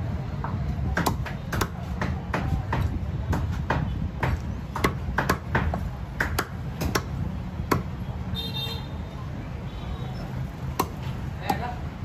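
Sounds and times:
knife chopping on wooden block: 0.4 - 7.9, 10.7 - 11.6.

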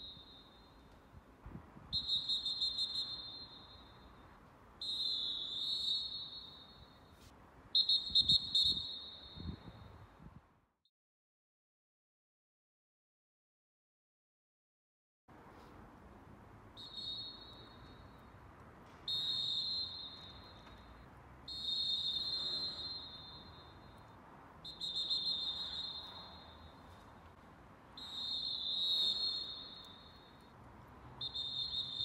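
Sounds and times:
distant referee whistle blasts: 0.0 - 0.8, 1.9 - 4.2, 4.8 - 7.1, 7.8 - 9.9, 16.8 - 18.2, 19.0 - 24.0, 24.6 - 27.0, 28.0 - 30.5, 31.2 - 32.0.

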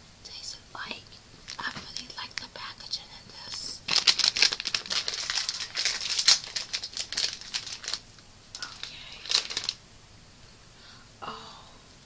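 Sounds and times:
plastic snack packet crinkling: 1.4 - 2.6, 3.4 - 9.8.

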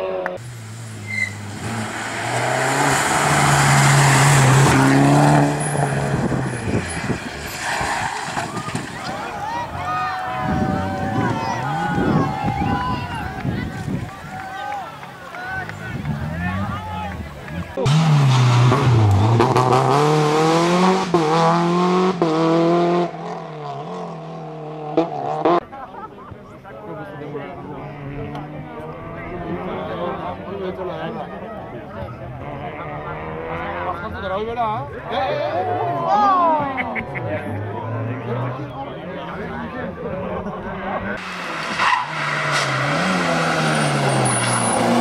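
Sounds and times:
rally car engine accelerating: 0.3 - 12.4, 15.6 - 25.7, 32.3 - 34.4, 37.1 - 45.0.

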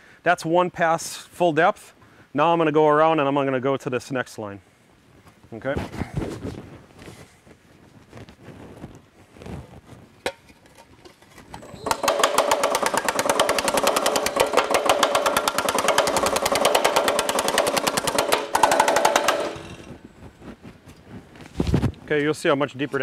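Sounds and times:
power hammer pounding sheet metal: 11.6 - 20.0.

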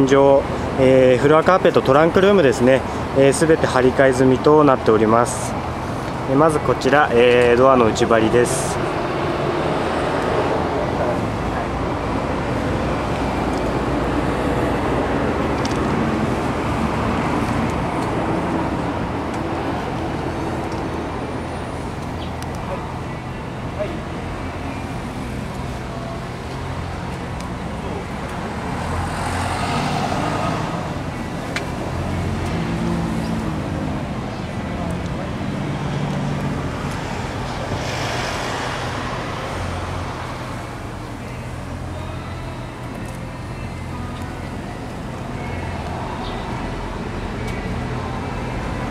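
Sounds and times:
motor vehicle engine rumble: 0.0 - 48.9
rushing noise: 22.8 - 41.6.

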